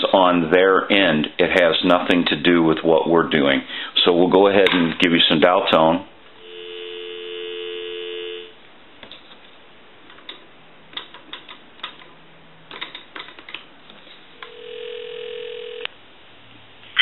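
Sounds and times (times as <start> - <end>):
telephone dial tone: 6.4 - 8.5, 14.4 - 15.9
telephone ringback tone: 6.4 - 8.6, 14.4 - 15.9.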